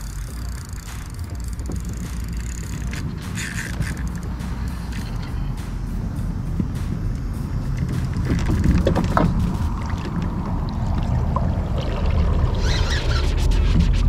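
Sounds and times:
water rumbling: 0:00.0 - 0:14.0
wind rumbling: 0:00.0 - 0:14.0
brief squeaks: 0:12.6 - 0:14.0.

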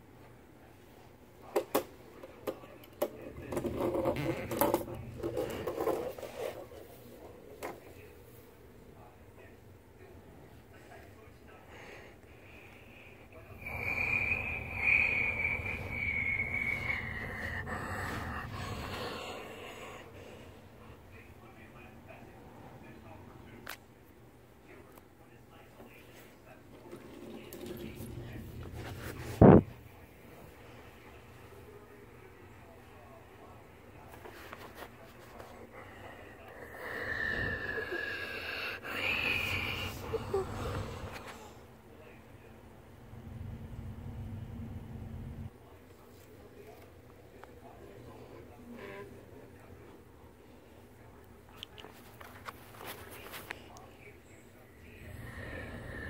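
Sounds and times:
person imitating jet engine: 0:13.6 - 0:19.2.

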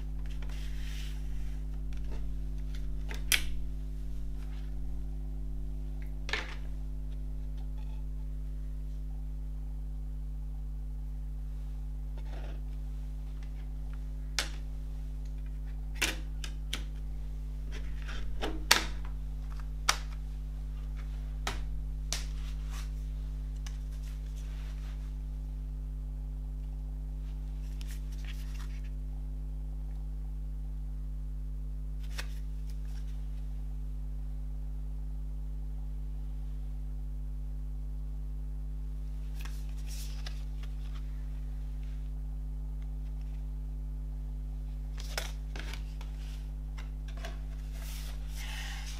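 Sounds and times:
steady low hum: 0:00.0 - 0:48.9
cardboard sleeve rustling: 0:00.1 - 0:05.1, 0:17.5 - 0:25.3, 0:27.2 - 0:29.0, 0:39.2 - 0:42.2, 0:44.9 - 0:48.9.

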